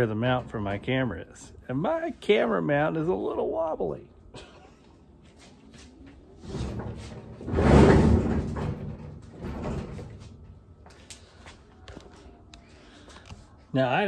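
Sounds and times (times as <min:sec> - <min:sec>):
workbench wheels rumbling: 0:06.4 - 0:10.6.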